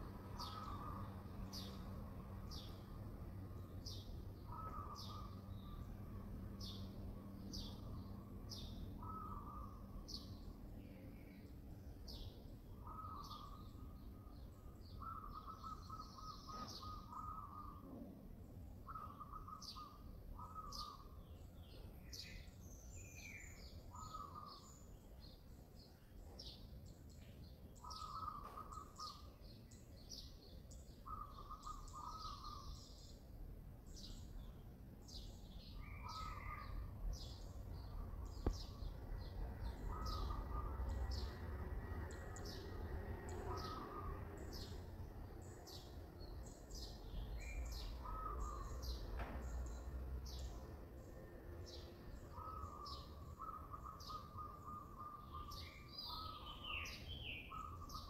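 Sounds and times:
birds chirping: 0:00.0 - 0:33.3, 0:33.9 - 0:58.0
low outdoor rumble: 0:30.8 - 0:53.9.

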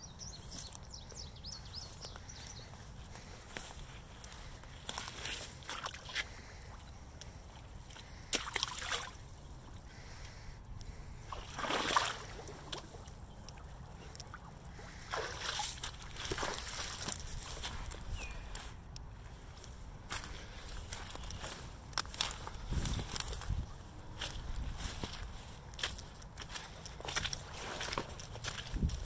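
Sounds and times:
boots splashing through mud: 0:04.8 - 0:06.6, 0:07.8 - 0:09.3, 0:11.2 - 0:13.2, 0:14.3 - 0:18.0, 0:20.1 - 0:29.0.

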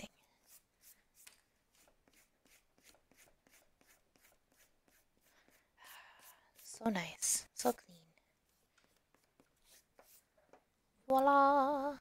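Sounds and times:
faint eraser rubbing on paper: 0:00.3 - 0:07.8, 0:08.4 - 0:10.4.

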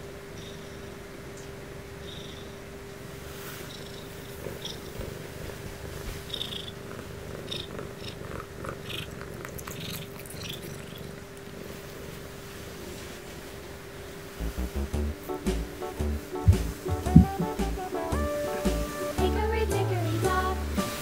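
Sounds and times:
cat purring: 0:02.1 - 0:21.0
fur and bedding rustling: 0:03.2 - 0:06.7, 0:11.6 - 0:21.0.

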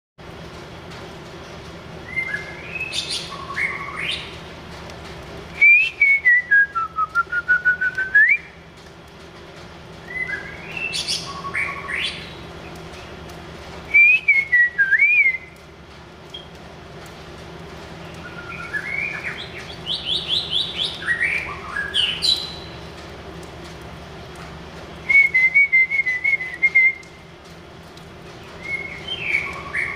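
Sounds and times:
bird singing whistled phrases: 0:02.1 - 0:04.3, 0:10.0 - 0:12.2, 0:13.9 - 0:15.5, 0:18.2 - 0:22.7, 0:25.0 - 0:27.0, 0:28.6 - 0:29.9.

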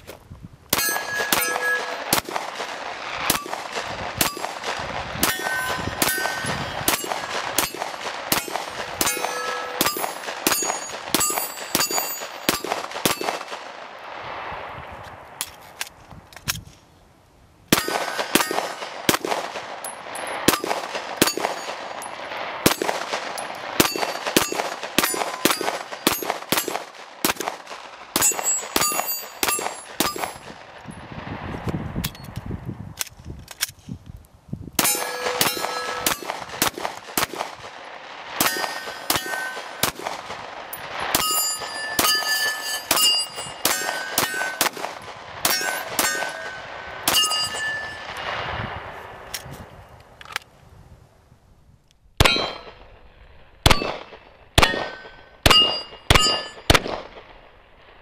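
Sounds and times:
pistol shots: 0:00.7 - 0:13.8, 0:17.7 - 0:30.6, 0:34.8 - 0:48.4, 0:52.2 - 0:53.0, 0:53.6 - 0:57.4
steel plate targets clanging: 0:00.8 - 0:02.3, 0:05.2 - 0:13.4, 0:19.8 - 0:26.8, 0:28.2 - 0:30.5, 0:34.8 - 0:36.7, 0:38.4 - 0:40.0, 0:40.7 - 0:48.2, 0:52.2 - 0:52.9, 0:53.7 - 0:56.7.

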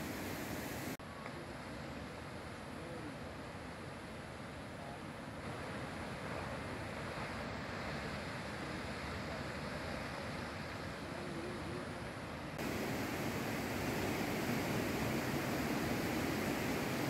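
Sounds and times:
floodwater rushing: 0:00.0 - 0:01.0, 0:05.4 - 0:17.0
wind: 0:00.0 - 0:17.0.

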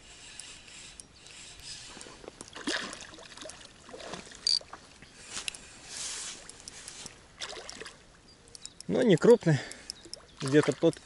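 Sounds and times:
fish splashing in water: 0:02.5 - 0:04.8, 0:07.3 - 0:08.0.

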